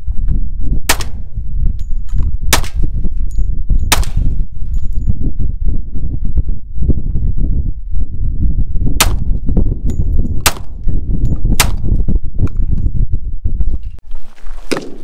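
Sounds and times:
wind buffeting microphone: 0.0s - 15.0s
pistol shots: 0.9s - 1.2s, 3.9s - 4.2s.

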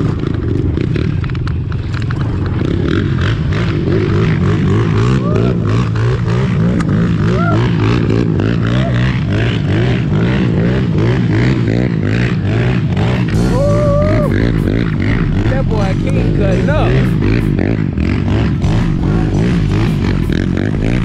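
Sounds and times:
dirt bike engines revving: 0.0s - 21.0s.

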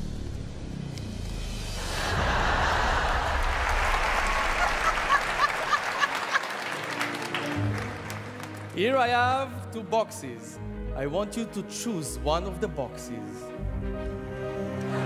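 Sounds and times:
audience laughing: 1.8s - 7.1s
audience applauding: 1.8s - 9.1s.

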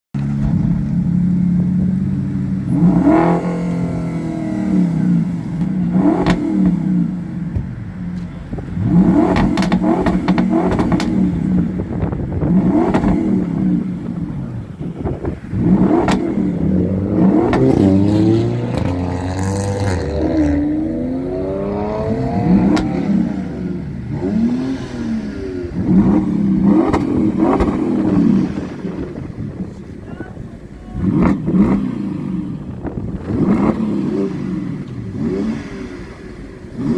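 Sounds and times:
car engine idling and revving: 0.2s - 36.9s
exhaust crackles and pops: 7.5s - 20.5s, 25.9s - 29.9s.

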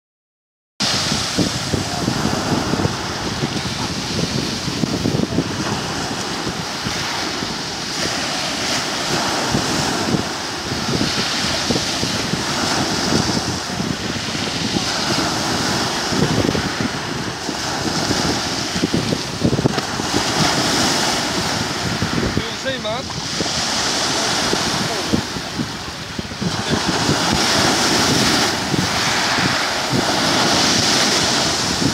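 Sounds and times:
waves breaking on pebble beach: 0.8s - 31.9s
wind buffeting microphone: 0.8s - 31.9s.

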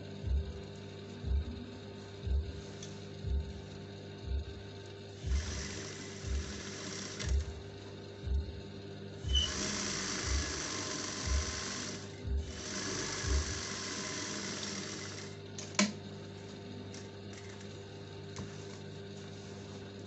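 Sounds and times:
sewing machine stitching: 5.3s - 7.6s, 9.3s - 15.9s.

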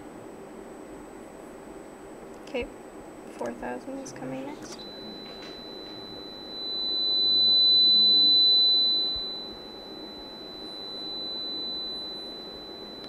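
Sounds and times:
high-pitched sine tone: 4.3s - 13.0s.

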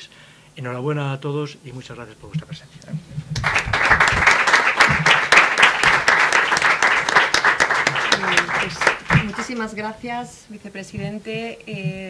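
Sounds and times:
audience applauding: 3.3s - 9.8s.

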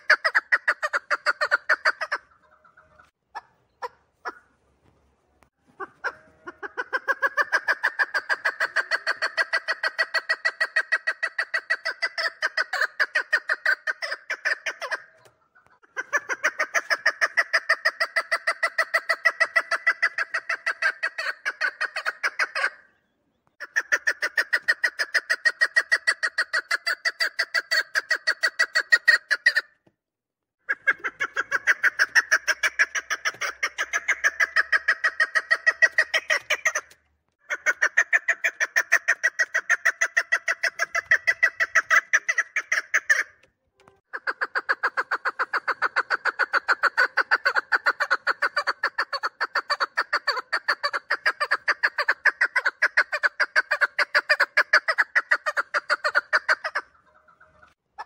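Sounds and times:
partridge calling chuk notes: 30.7s - 57.8s.

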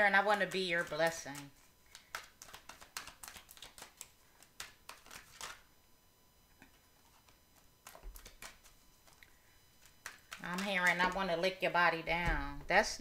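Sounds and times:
cards being shuffled: 0.3s - 5.6s, 7.0s - 9.2s, 9.8s - 11.3s.

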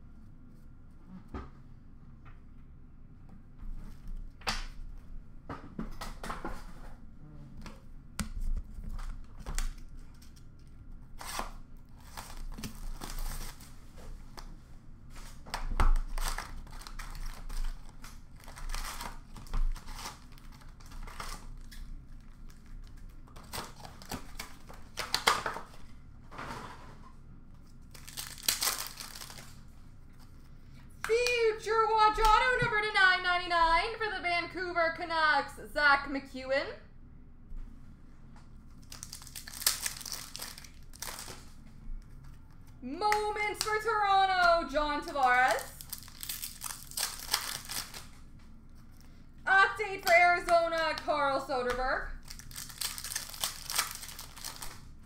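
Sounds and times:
wrappers tearing and crinkling: 11.1s - 13.8s, 15.7s - 25.8s, 27.8s - 29.7s, 38.8s - 41.6s, 45.2s - 48.2s, 52.2s - 54.9s.

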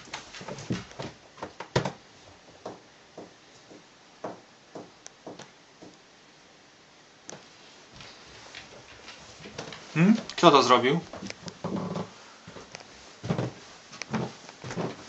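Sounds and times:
dog paws on carpeted stairs: 0.0s - 5.9s, 8.0s - 10.5s, 11.1s - 15.0s.

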